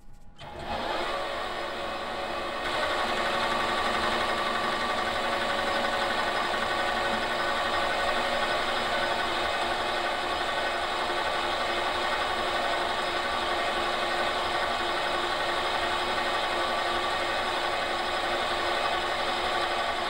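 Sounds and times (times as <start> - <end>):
metal lathe humming: 0.4 - 20.0.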